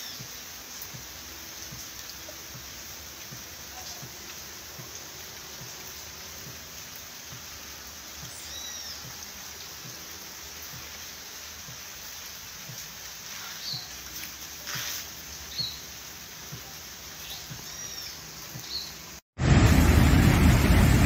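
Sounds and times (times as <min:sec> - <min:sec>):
steady rain on trees: 0:00.0 - 0:21.0
bird chirping: 0:17.2 - 0:19.0.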